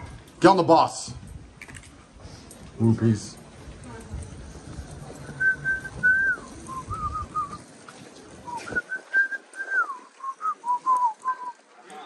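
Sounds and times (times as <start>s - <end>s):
person whistling a tune: 5.4s - 7.6s, 8.5s - 11.6s.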